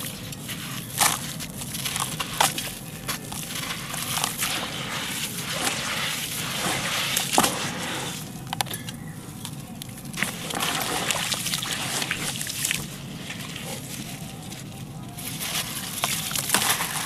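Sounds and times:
wet concrete sloshing and squelching: 0.0s - 17.0s.

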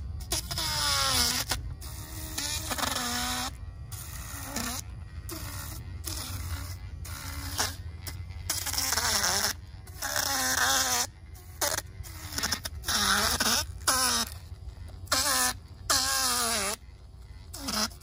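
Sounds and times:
electric fish descaler whine: 0.0s - 1.9s
scraping hiss: 0.0s - 18.0s.

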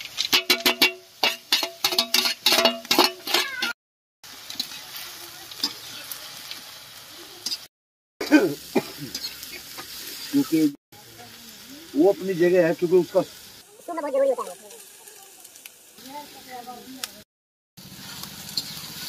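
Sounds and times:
spatula scraping pan: 0.0s - 3.8s
onions sizzling in hot oil: 0.0s - 19.0s
metal spatula clanking on pan: 0.2s - 3.8s.

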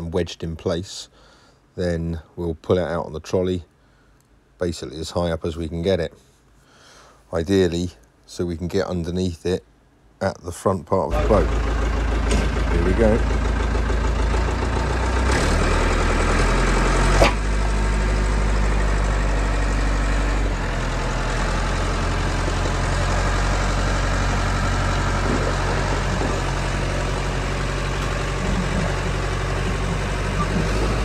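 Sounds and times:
engine running under load: 11.1s - 31.0s
sharp knock: 17.2s - 17.4s.

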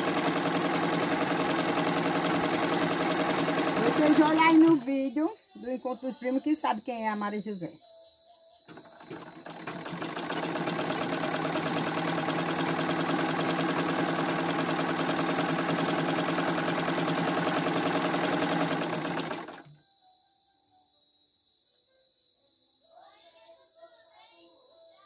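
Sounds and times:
sewing machine stitching: 0.0s - 4.8s, 8.7s - 19.8s.

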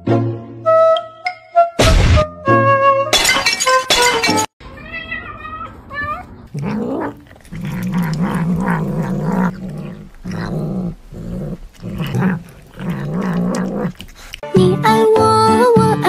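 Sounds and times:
kitten growling: 6.1s - 14.4s.

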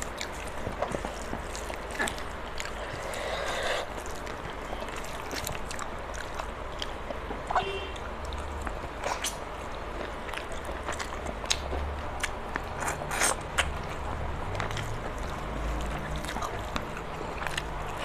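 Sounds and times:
chewing: 0.0s - 18.0s
sharp clicks and smacks: 8.3s - 18.0s.

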